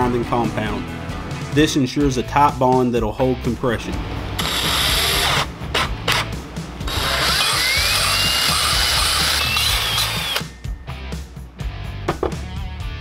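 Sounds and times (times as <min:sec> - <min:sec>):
drill grinding valve: 0:04.4 - 0:06.3, 0:06.9 - 0:10.5.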